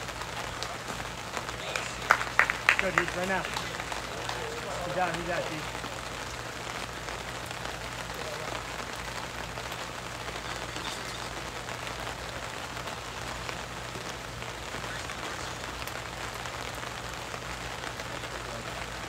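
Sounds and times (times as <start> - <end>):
steady outdoor hiss: 0.0 - 19.0.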